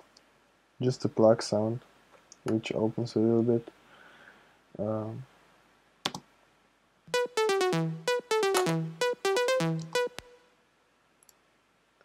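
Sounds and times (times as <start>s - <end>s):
synth plucked notes: 7.1s - 10.4s.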